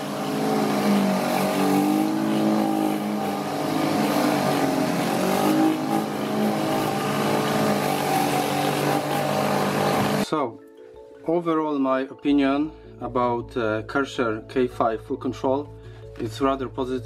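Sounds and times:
pressure washer humming: 0:00.0 - 0:10.2.

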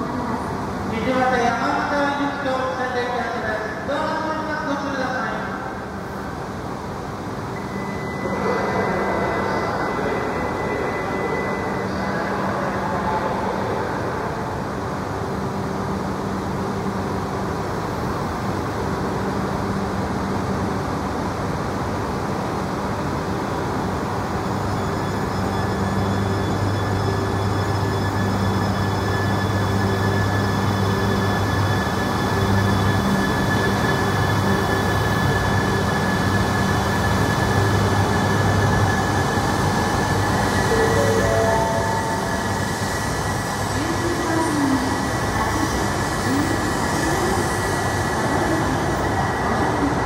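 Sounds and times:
train humming at platform: 0:00.0 - 0:50.0
train motor hum and whine: 0:23.5 - 0:50.0.

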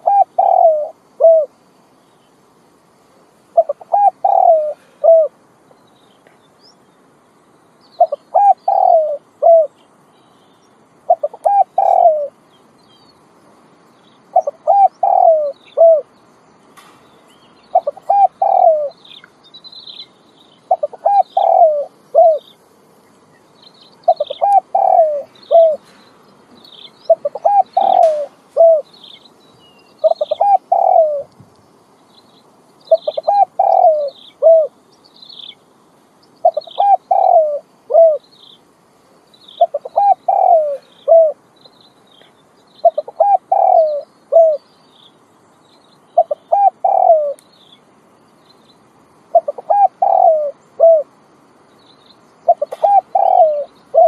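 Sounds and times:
pigeon cooing: 0:00.0 - 0:01.5, 0:03.6 - 0:05.4, 0:08.0 - 0:09.8, 0:11.1 - 0:12.4, 0:14.4 - 0:16.1, 0:17.7 - 0:19.0, 0:20.7 - 0:22.5, 0:24.0 - 0:26.0, 0:27.1 - 0:28.9, 0:30.0 - 0:31.3, 0:32.9 - 0:34.8, 0:36.4 - 0:38.2, 0:39.6 - 0:41.4, 0:42.8 - 0:44.6, 0:46.2 - 0:47.4, 0:49.3 - 0:51.1, 0:52.5 - 0:54.0
small birds chirping: 0:00.0 - 0:54.0.

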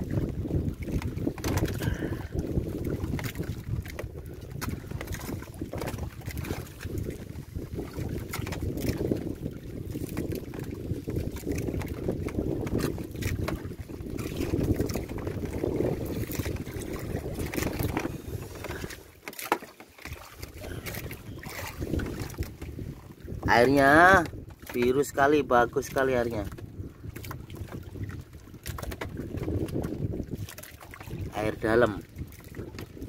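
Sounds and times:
wind buffeting microphone: 0:00.0 - 0:19.1, 0:20.1 - 0:33.0
choppy sea: 0:00.0 - 0:33.0
small knocks on boat: 0:00.8 - 0:02.0, 0:02.9 - 0:07.3, 0:07.9 - 0:09.2, 0:10.0 - 0:22.8, 0:24.1 - 0:25.0, 0:26.4 - 0:31.1.

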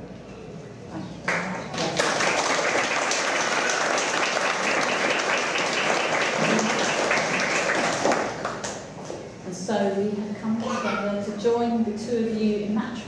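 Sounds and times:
crowd applauding: 0:01.3 - 0:08.9.

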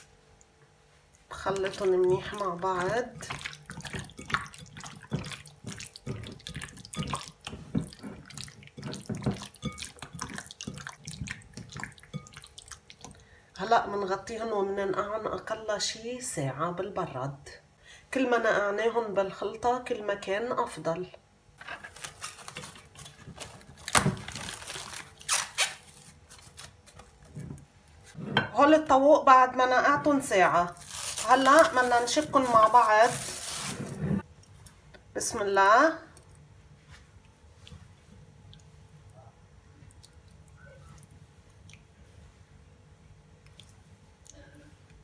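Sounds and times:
wet squelching of marinated meat: 0:01.4 - 0:13.3
cling film crinkling: 0:21.9 - 0:27.2, 0:30.7 - 0:34.0.

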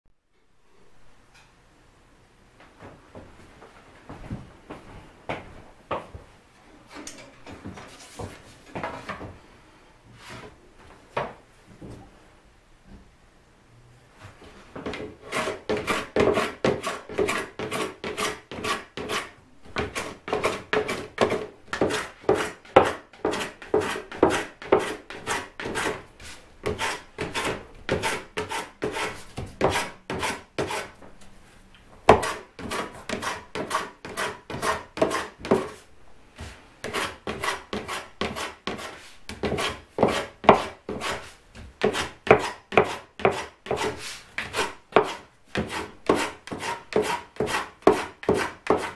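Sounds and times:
hand plane shaving wood: 0:15.2 - 0:26.0, 0:26.6 - 0:30.9, 0:32.2 - 0:35.7, 0:36.8 - 0:48.9.

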